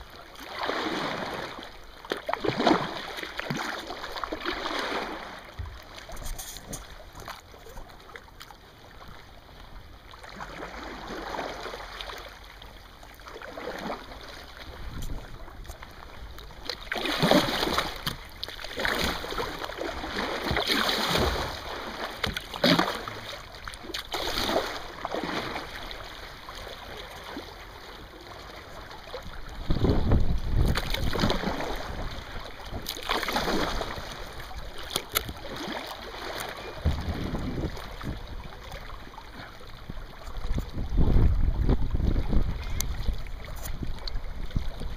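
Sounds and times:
water lapping against rocks: 0:00.0 - 0:44.9
water splashes: 0:00.0 - 0:44.9
wind buffeting microphone: 0:29.4 - 0:32.3, 0:36.7 - 0:38.6, 0:39.8 - 0:44.9.

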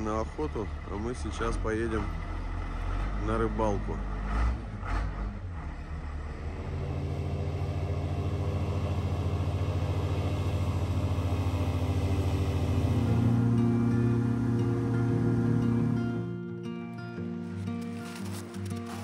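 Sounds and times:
airboat engine drone: 0:06.6 - 0:16.5.

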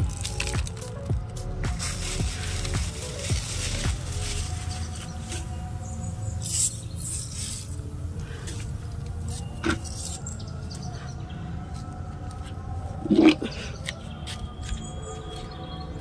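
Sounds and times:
rustles: 0:00.0 - 0:05.6
low rumble: 0:00.0 - 0:06.4.

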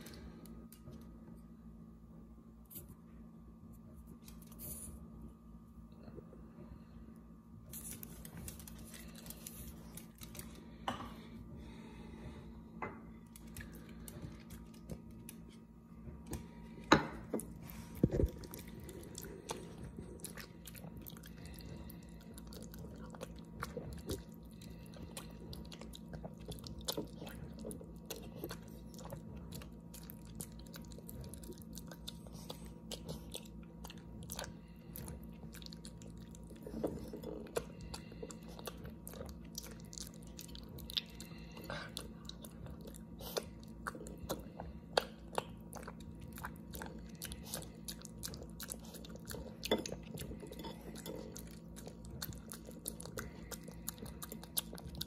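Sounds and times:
dog chewing wet food: 0:16.2 - 0:55.0.

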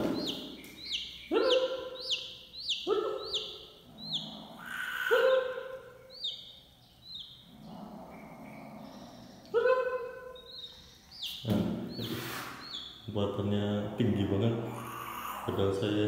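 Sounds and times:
baby chicks peeping: 0:00.0 - 0:16.0
cat meowing: 0:14.7 - 0:15.6.

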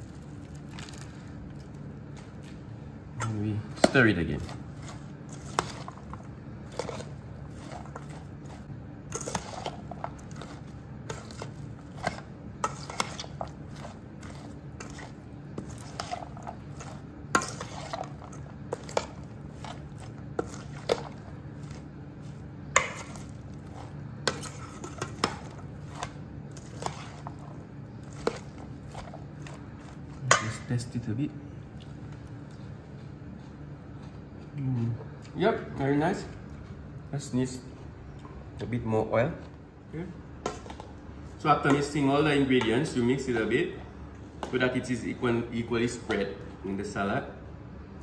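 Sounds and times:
spoon stirring salad: 0:03.2 - 0:30.7.

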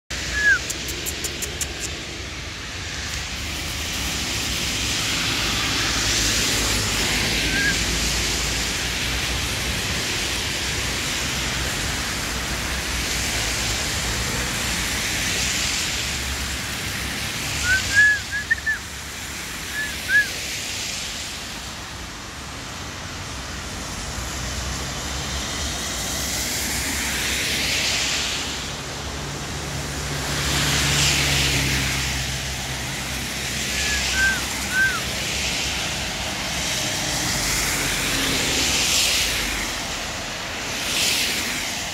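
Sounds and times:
background traffic rumble: 0:00.1 - 0:41.9
tyre hiss on wet road: 0:00.1 - 0:41.9
short high chirps: 0:00.2 - 0:01.9, 0:33.8 - 0:35.0.

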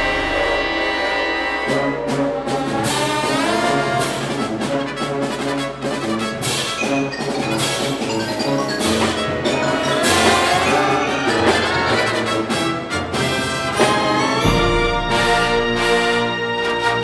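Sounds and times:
deep bass note: 0:00.0 - 0:01.5
wind band playing: 0:00.0 - 0:17.0
mallet percussion ringing: 0:06.7 - 0:12.2.

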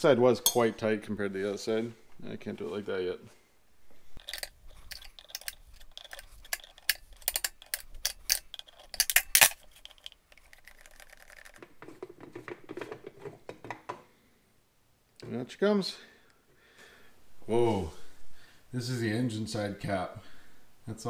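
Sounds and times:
steel rod clinking on metal cap: 0:00.4 - 0:00.7, 0:04.2 - 0:11.1
end cap scraping on threads: 0:04.2 - 0:13.0.

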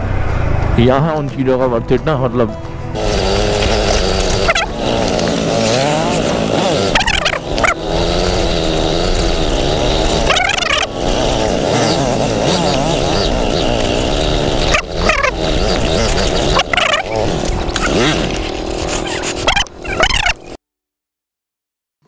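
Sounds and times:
motorcycle engine revving: 0:02.8 - 0:20.6.

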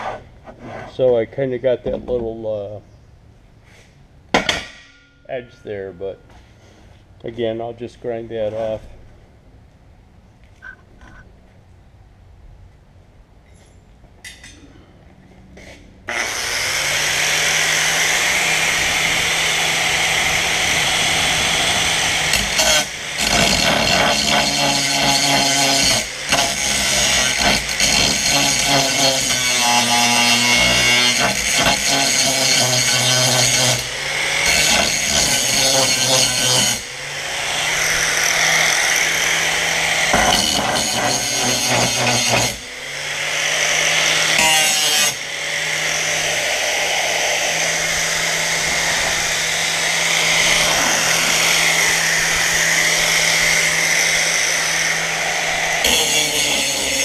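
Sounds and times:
angle grinder grinding steel: 0:15.6 - 0:57.0.

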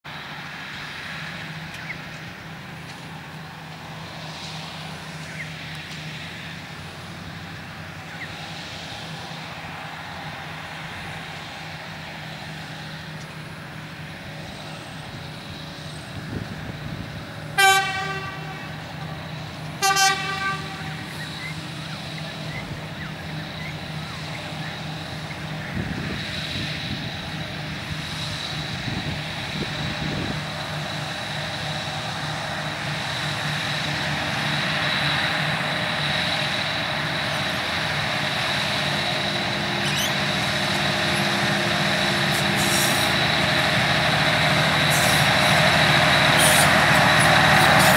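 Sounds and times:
diesel engine drone: 0:00.0 - 0:47.9
locomotive horn blasts: 0:17.5 - 0:19.1, 0:19.7 - 0:21.2.

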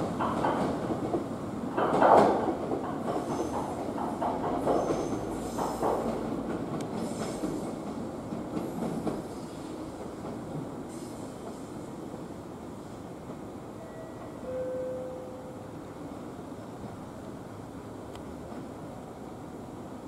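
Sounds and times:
train wheels clattering over rail joints: 0:00.0 - 0:09.4.

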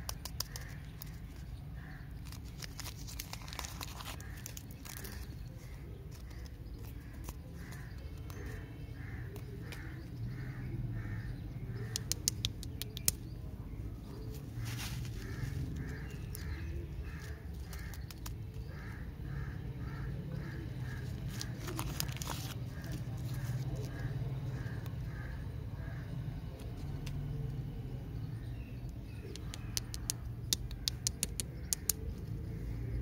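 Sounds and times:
plastic wrapper crinkling: 0:02.2 - 0:07.9, 0:20.8 - 0:24.0
crow cawing: 0:07.5 - 0:12.0, 0:14.6 - 0:18.1, 0:18.7 - 0:26.2.

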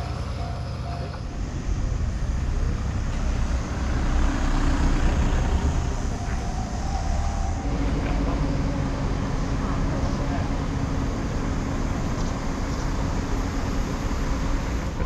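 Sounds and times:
vehicle rumbling in motion: 0:00.0 - 0:15.0.

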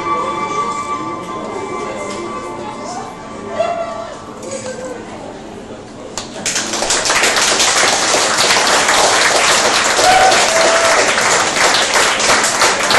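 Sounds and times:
audience applauding: 0:06.3 - 0:12.9.

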